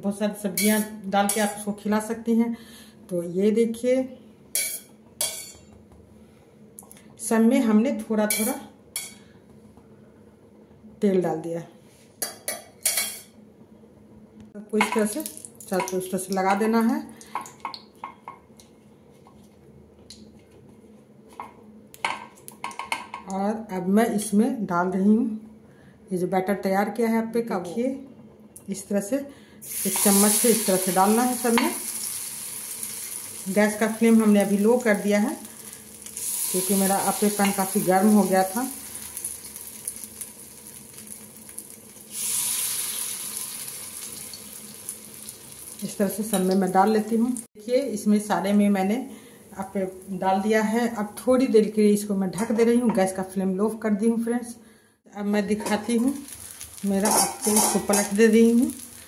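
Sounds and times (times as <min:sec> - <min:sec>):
low background hum: 0:00.0 - 0:59.0
hot oil sizzling and crackling: 0:29.6 - 0:47.5, 0:55.6 - 0:59.0.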